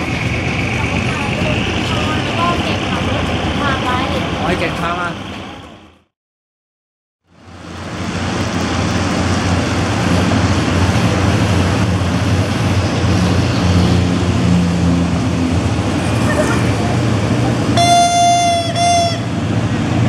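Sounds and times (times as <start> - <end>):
locomotive engine drone: 0.0 - 6.1, 7.2 - 20.0
rumble of moving train: 0.0 - 6.1, 7.2 - 20.0.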